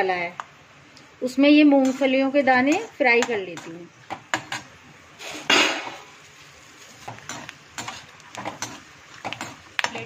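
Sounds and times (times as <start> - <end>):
frying sizzle: 0.0 - 10.0
metal spoon scraping a pan: 1.7 - 6.1, 7.0 - 10.0.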